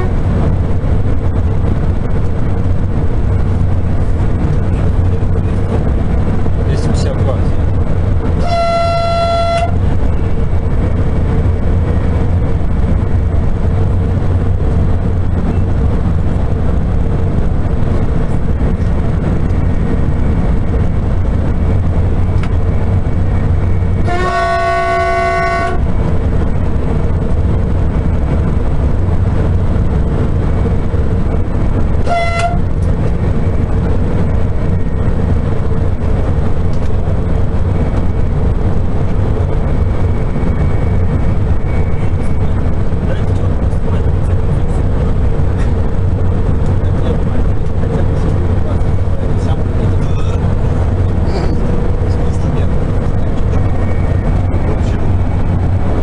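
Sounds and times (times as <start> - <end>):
train horn blasts: 0.0 - 0.3, 8.4 - 9.9, 24.0 - 25.9, 32.0 - 32.8
train rumble: 0.0 - 56.0.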